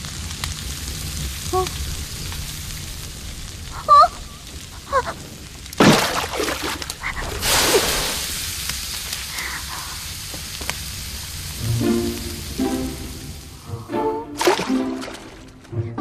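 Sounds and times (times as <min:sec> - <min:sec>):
fire flaring in a wok: 0:00.0 - 0:14.0
water hissing in hot wok: 0:00.0 - 0:15.4
woman crying out: 0:03.8 - 0:04.2.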